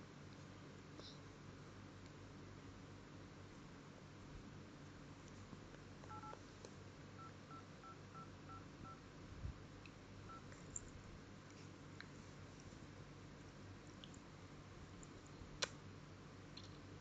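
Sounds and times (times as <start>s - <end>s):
phone keypad beeps: 6.1s - 6.4s.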